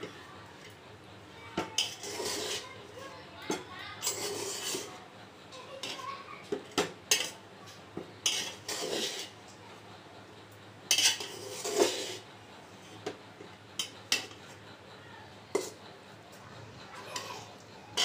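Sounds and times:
metal spatula scraping a pot: 0:01.8 - 0:02.8, 0:04.0 - 0:05.0, 0:08.2 - 0:09.4, 0:10.9 - 0:12.2.

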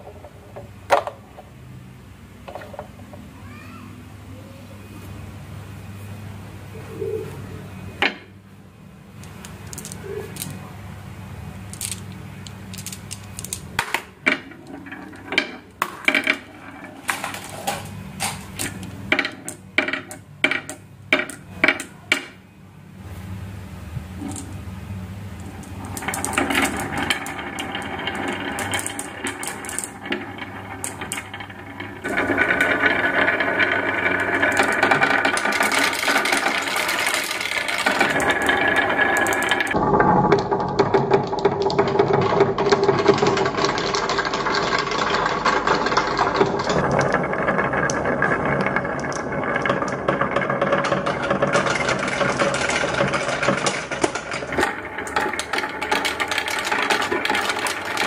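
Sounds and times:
marbles rolling rumble: 0:02.5 - 0:02.9, 0:09.1 - 0:22.4, 0:24.0 - 0:58.0
marbles clacking: 0:09.1 - 0:10.6, 0:11.6 - 0:22.4, 0:24.2 - 0:58.0.

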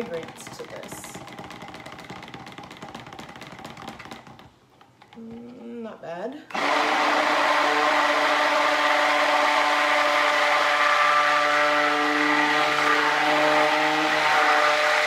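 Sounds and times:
immersion blender motor whine: 0:06.5 - 0:15.0.

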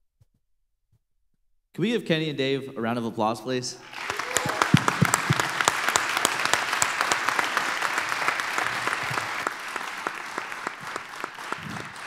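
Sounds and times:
audience applause: 0:03.8 - 0:12.0.

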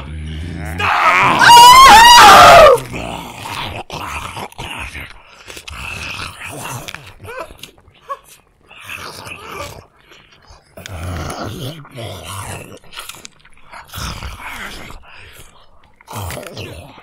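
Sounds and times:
monster growling and clicking: 0:00.0 - 0:01.5, 0:02.5 - 0:07.9, 0:08.7 - 0:17.0
wavering scream: 0:00.6 - 0:02.9.

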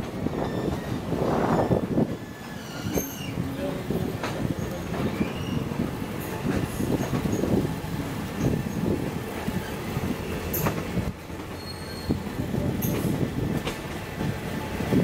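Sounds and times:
train wheels rumbling and clattering: 0:00.0 - 0:15.0
faint wheel squeal: 0:00.4 - 0:03.4, 0:05.0 - 0:05.8, 0:11.5 - 0:12.3.

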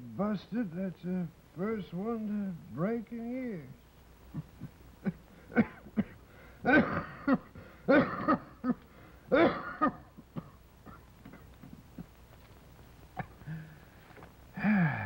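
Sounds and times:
man coughing: 0:04.3 - 0:11.1
catches of breath: 0:05.2 - 0:05.6, 0:06.2 - 0:06.7, 0:07.5 - 0:07.9, 0:08.8 - 0:09.3, 0:13.4 - 0:15.0.

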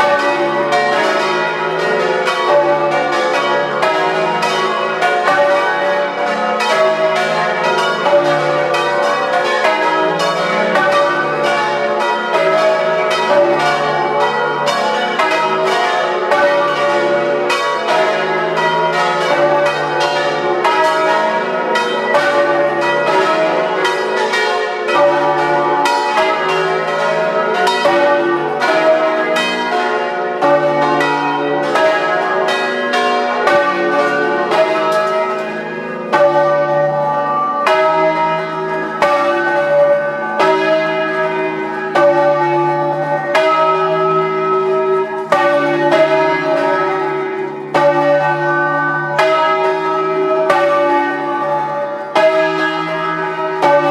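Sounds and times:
church bells ringing a peal: 0:00.0 - 0:53.9.

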